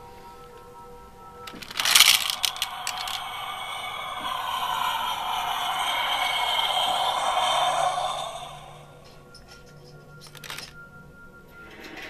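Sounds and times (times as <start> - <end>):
toy jet take-off sound effect: 1.5 - 9.3.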